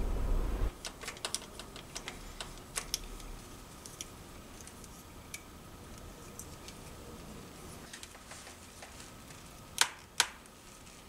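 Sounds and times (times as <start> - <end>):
metal parts clicking: 0.7 - 7.0.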